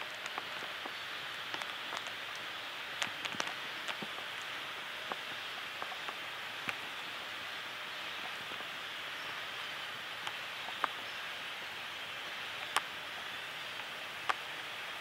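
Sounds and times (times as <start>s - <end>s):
swamp woods ambience hiss: 0.0s - 15.0s
sharp ticks or snaps: 0.1s - 6.9s, 10.2s - 11.0s, 12.5s - 14.5s.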